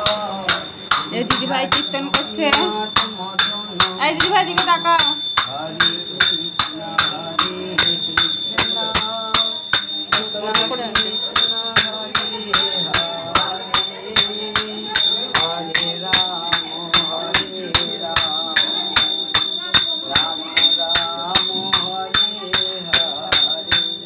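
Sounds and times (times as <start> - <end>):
ringing metal instrument beat: 0.0 - 24.0
woman chanting: 1.0 - 5.3.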